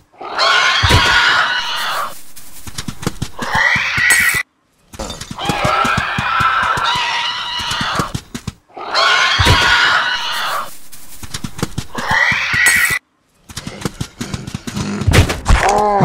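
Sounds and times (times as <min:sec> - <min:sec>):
rasping raptor screeches: 0:00.2 - 0:02.2, 0:08.8 - 0:10.8.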